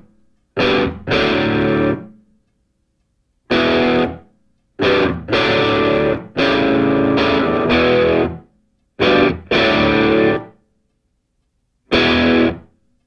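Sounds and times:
distorted rock guitar chords: 0.6s - 2.1s, 3.5s - 4.2s, 4.8s - 8.4s, 9.0s - 10.6s, 11.9s - 12.7s.

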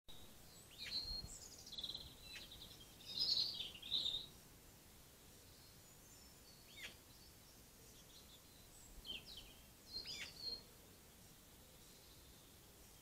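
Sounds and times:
quiet outdoor background noise: 0.1s - 13.0s
faint bird calls: 5.4s - 7.3s, 7.9s - 10.8s.

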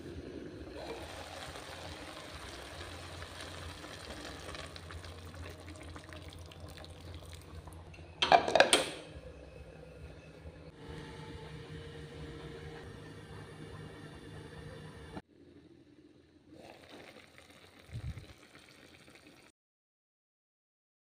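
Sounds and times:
water pouring into a pot: 0.7s - 7.8s, 16.6s - 19.5s
glass pot lid clattering: 8.2s - 8.9s.

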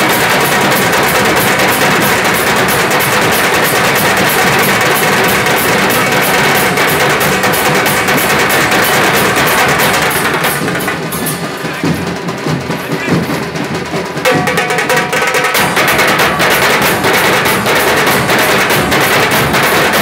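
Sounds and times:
large drums beaten hard: 0.0s - 20.0s.

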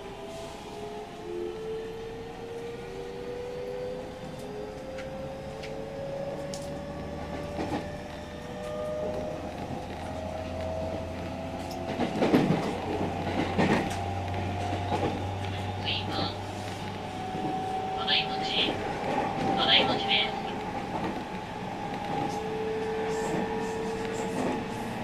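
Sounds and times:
train motor whine rising: 0.0s - 19.4s.

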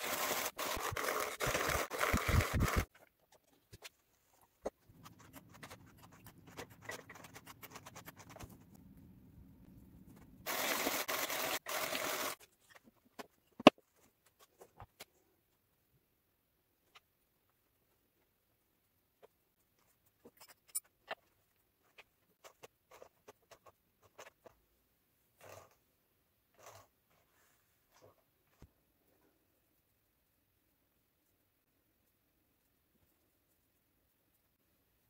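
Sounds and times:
carding drums scratchy rushing: 0.0s - 2.9s.

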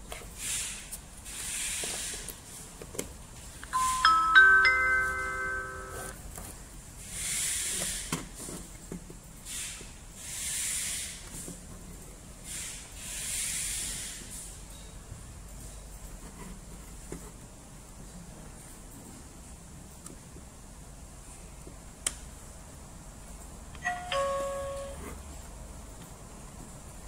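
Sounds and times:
pager electronic chime: 3.8s - 6.1s, 23.8s - 25.1s.

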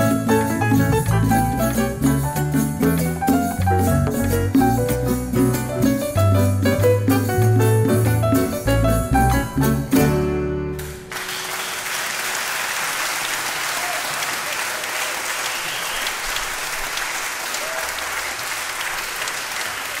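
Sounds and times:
audience applauding: 10.8s - 20.0s.

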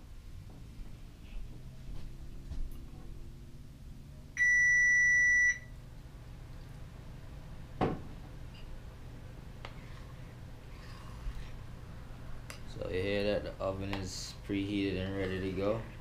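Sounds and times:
oven beeping: 4.4s - 5.8s.

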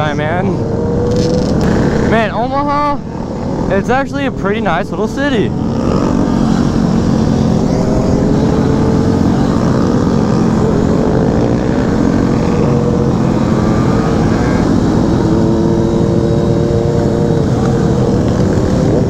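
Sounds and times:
motorcycle engine cruising: 0.0s - 19.0s
other motorcycle engines: 0.0s - 19.0s.

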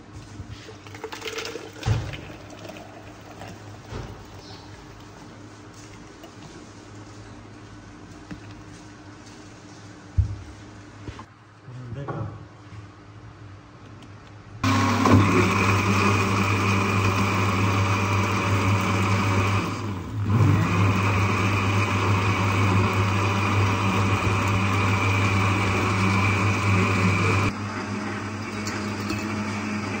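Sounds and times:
electric blender running: 14.6s - 30.0s.

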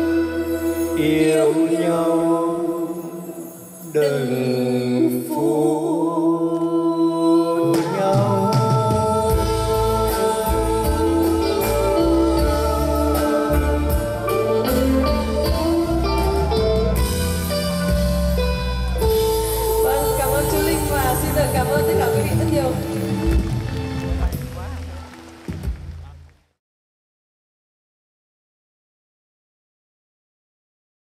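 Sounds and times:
live band: 0.0s - 5.6s, 7.4s - 26.4s
man and woman singing duet: 0.0s - 17.6s
bass and drums: 7.7s - 26.4s.

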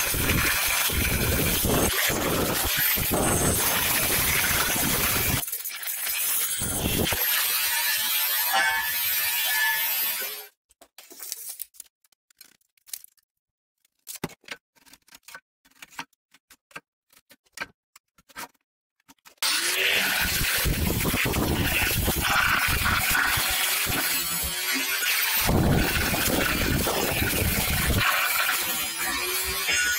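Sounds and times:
angle grinder cutting steel: 0.0s - 10.5s, 19.4s - 29.9s.

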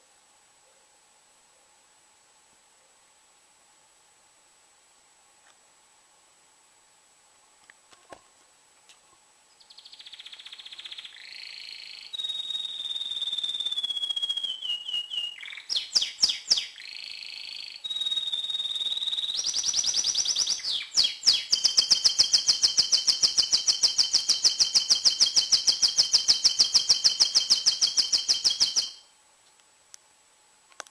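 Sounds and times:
canary singing trills: 9.5s - 29.1s.

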